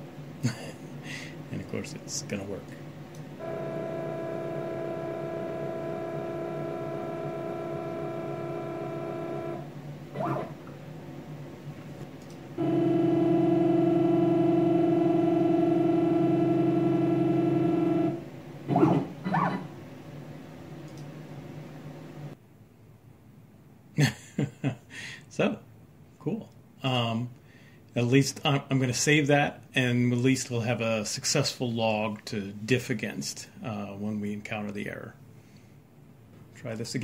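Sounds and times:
stepper motors whining: 3.4s - 10.8s, 12.6s - 19.7s.

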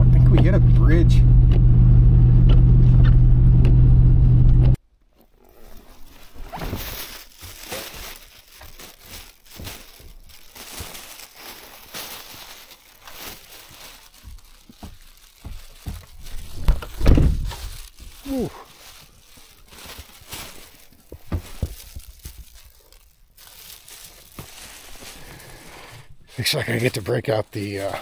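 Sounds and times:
truck cab engine and road noise: 0.0s - 4.9s
plastic bag rustling: 5.1s - 27.9s
footsteps crunching through snow: 5.7s - 27.8s.

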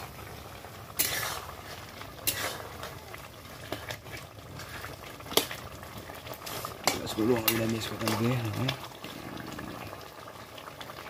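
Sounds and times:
curry bubbling: 0.0s - 11.0s
metal ladle scraping wok: 0.8s - 8.2s.

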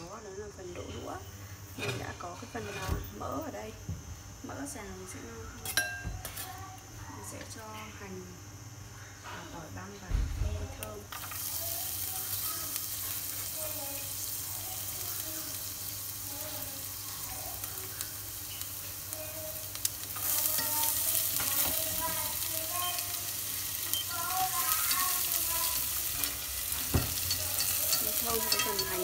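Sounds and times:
garlic sizzling in fat: 10.7s - 29.0s
chopsticks stirring: 19.7s - 29.0s.

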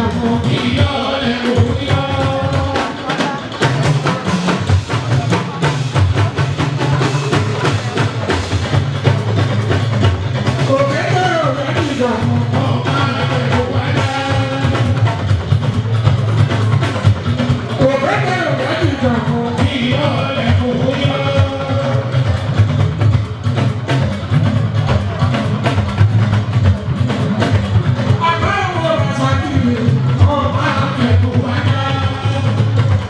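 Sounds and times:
lead singer's voice: 0.0s - 5.9s, 10.5s - 15.5s, 17.7s - 22.6s, 28.1s - 33.0s
bass line: 0.0s - 33.0s
hand-drum percussion: 0.0s - 33.0s.

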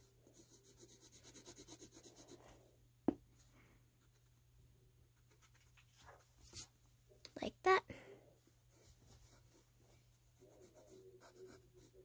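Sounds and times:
pencil scribbling on paper: 0.0s - 2.5s, 9.2s - 12.0s.

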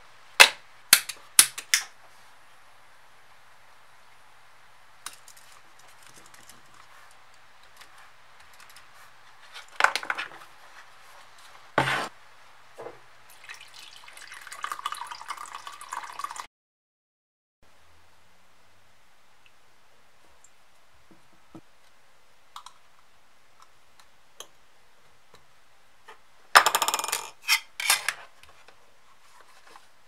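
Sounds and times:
water pouring and splashing: 13.3s - 16.5s.

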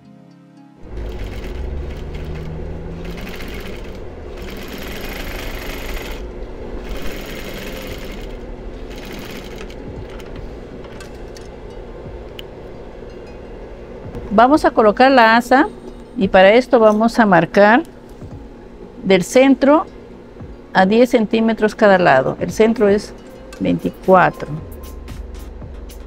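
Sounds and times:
sewing machine stitching denim: 0.8s - 10.3s
low motor hum: 0.8s - 26.0s.

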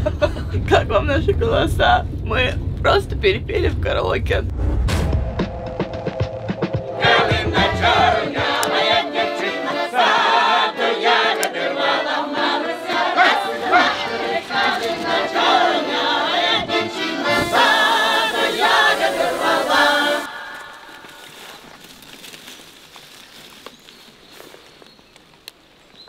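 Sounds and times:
voices singing in chorus: 6.6s - 21.2s.

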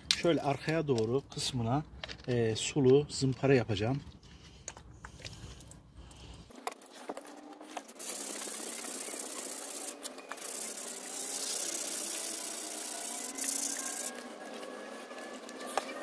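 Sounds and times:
sandpaper rubbing on wet pipe: 7.6s - 16.0s.

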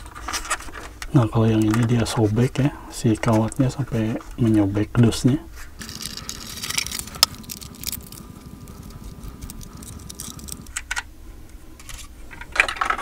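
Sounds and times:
sharp ticks: 5.8s - 10.8s.

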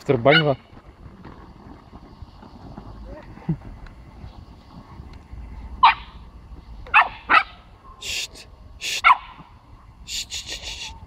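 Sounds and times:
puppy yapping: 6.9s - 7.6s, 9.0s - 9.4s
hissing bursts: 8.0s - 9.0s, 10.1s - 11.0s.

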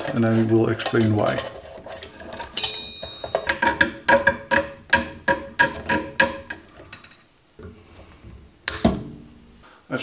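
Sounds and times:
metallic clicks and clinks: 2.6s - 3.8s.

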